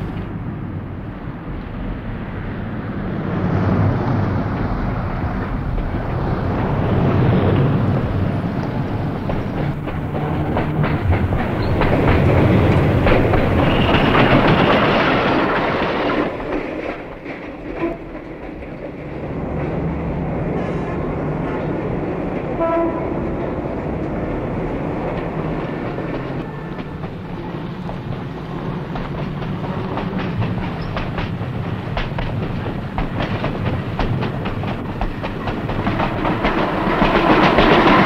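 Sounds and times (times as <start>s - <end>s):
streetcar rumbling past: 0.0s - 38.0s
wheels clicking over rail joints: 5.4s - 20.0s, 23.4s - 38.0s.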